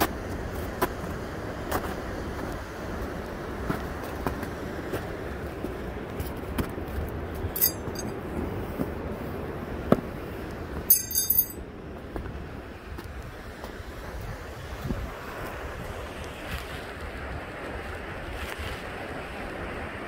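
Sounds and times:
metallic clinking jingles: 7.6s - 8.1s, 10.9s - 11.6s.

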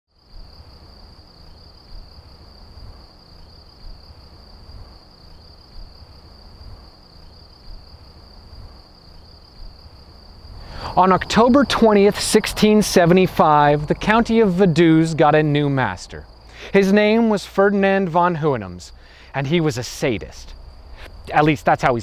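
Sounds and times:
insects trilling: 0.2s - 22.0s
low rumble: 20.4s - 22.0s.

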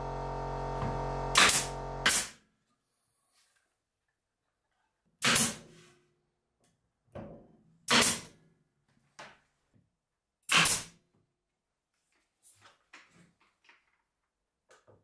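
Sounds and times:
nail gun firing into plywood: 0.8s - 2.4s, 5.2s - 5.6s, 7.9s - 8.3s, 10.4s - 11.0s.

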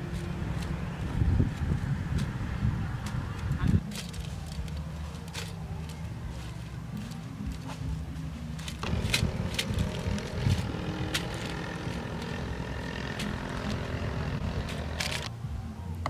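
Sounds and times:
steady low rumble: 0.0s - 15.6s
foil crinkling: 3.4s - 6.0s, 8.6s - 15.3s.

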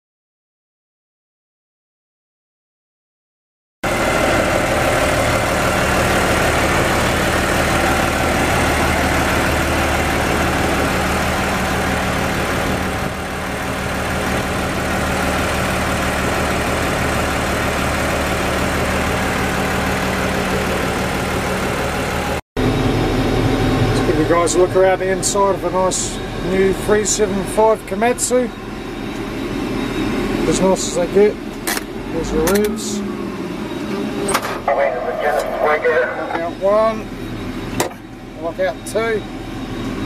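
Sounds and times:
bulldozer diesel engine idling: 3.9s - 22.4s, 30.2s - 39.6s.

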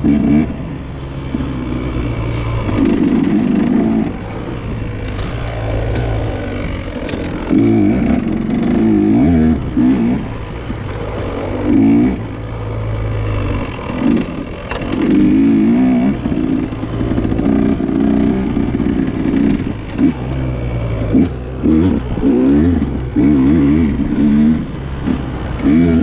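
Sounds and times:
dirt bike engine revving: 0.0s - 26.0s.

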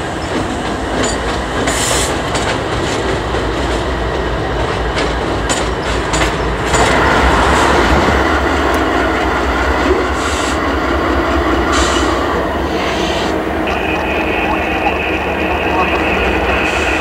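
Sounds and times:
wheels clicking over rail joints: 0.0s - 7.0s
freight train rolling by: 0.0s - 17.0s.

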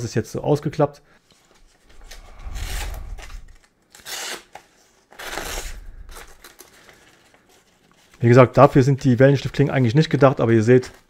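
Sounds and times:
paper rustling: 5.1s - 8.4s.

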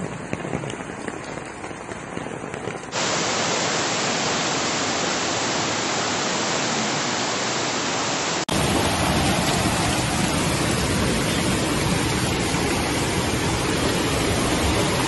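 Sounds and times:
floodwater rushing down street: 0.0s - 15.0s.

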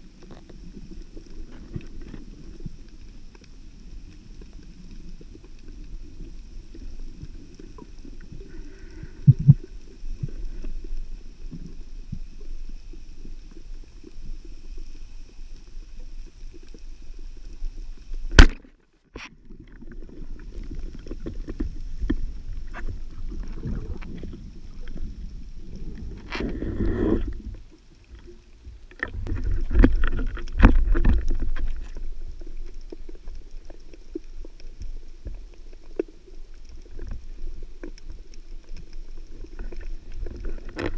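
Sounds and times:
low underwater rumble: 0.0s - 18.6s, 19.4s - 40.9s
speargun firing crack: 18.4s - 18.6s.

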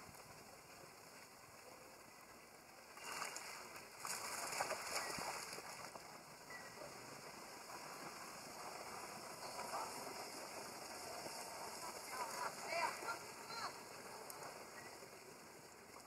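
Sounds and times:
monkeys splashing in water: 3.0s - 6.1s.

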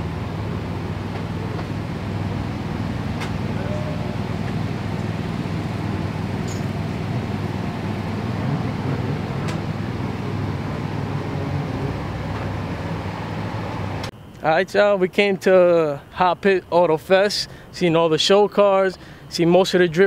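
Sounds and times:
low engine rumble: 0.0s - 14.2s.

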